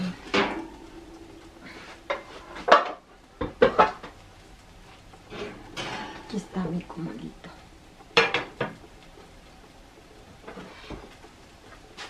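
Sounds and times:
metal pots and pans clattering: 0.0 - 0.8, 1.7 - 4.2, 5.3 - 6.5, 8.1 - 8.9.

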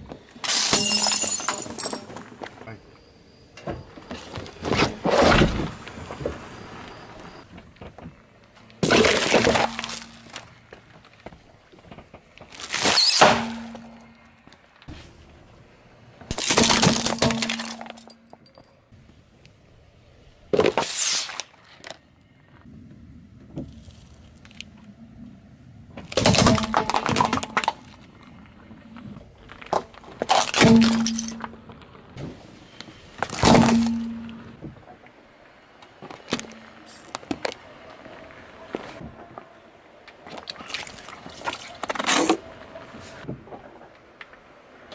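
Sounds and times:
objects crunching under car tyre: 3.8 - 15.4, 16.2 - 18.6, 20.5 - 22.7, 25.9 - 35.0, 35.8 - 44.9.

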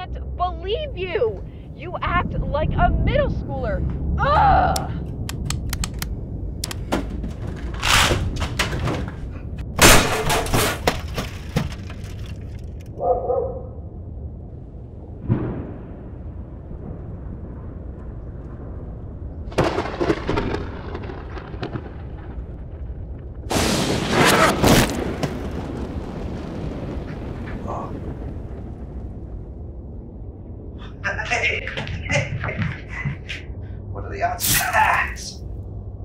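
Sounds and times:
computer tower crashing: 9.8 - 12.8.

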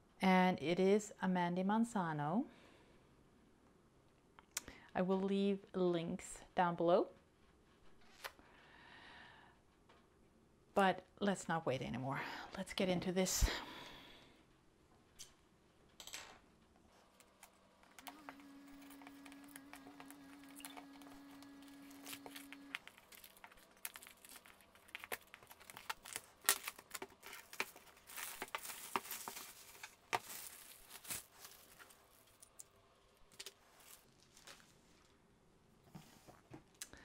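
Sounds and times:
plastic film crinkling and tearing: 17.9 - 32.7, 33.3 - 35.2
hobby knife slitting plastic wrap: 21.0 - 31.8.

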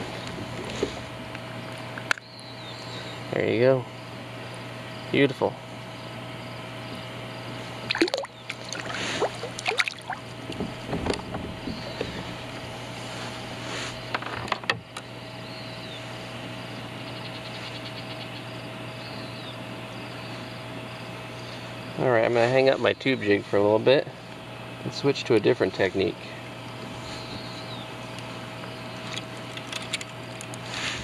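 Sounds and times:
steady low hum: 0.0 - 31.0
water splashing: 7.9 - 10.3.

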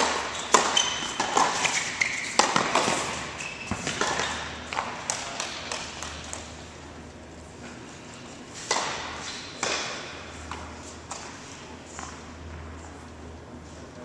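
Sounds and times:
shoe squeaks: 0.0 - 4.7
balls bouncing on hard court: 0.0 - 6.6, 8.6 - 12.7
tennis balls hit with rackets: 0.0 - 6.6, 8.6 - 12.7.

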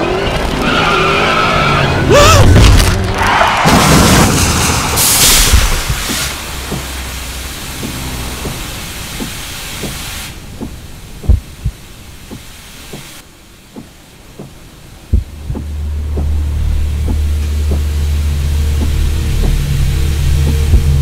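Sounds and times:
low hum: 4.2 - 21.0
deep thuds: 5.4 - 7.2, 7.8 - 13.2, 13.8 - 18.0, 18.7 - 21.0.

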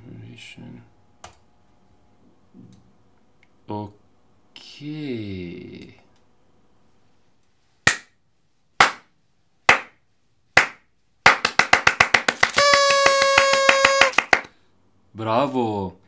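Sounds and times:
hand clapping: 8.8 - 9.1, 9.7 - 10.0, 10.6 - 14.5.

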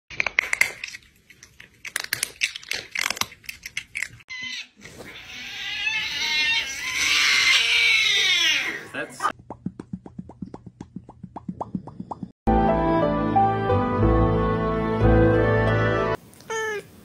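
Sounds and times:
chewing potato chips: 0.1 - 4.2.

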